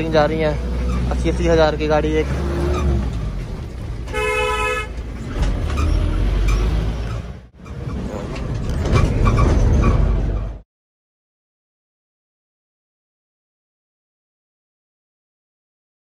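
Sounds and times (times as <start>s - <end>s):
vehicle horn toot: 4.1s - 5.0s.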